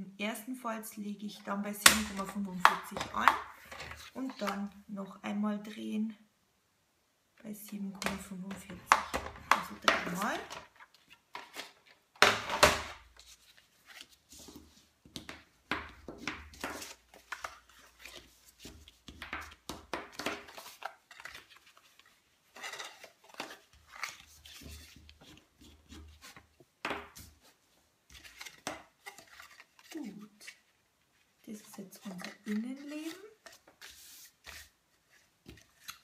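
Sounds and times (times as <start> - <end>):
paper scraping and rustling: 3.2 - 4.6, 9.4 - 12.0, 13.0 - 14.9, 16.1 - 26.5, 27.2 - 36.0.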